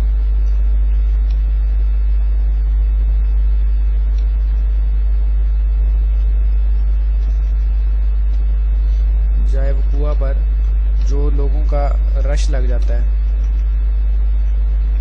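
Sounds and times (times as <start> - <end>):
low mains hum: 0.0 - 15.0.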